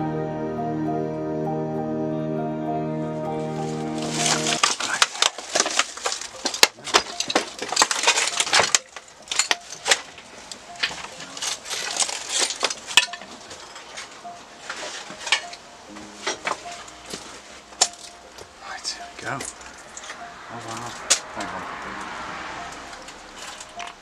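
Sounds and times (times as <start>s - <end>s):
crunching and rustling of debris: 4.0s - 21.5s, 22.7s - 24.0s.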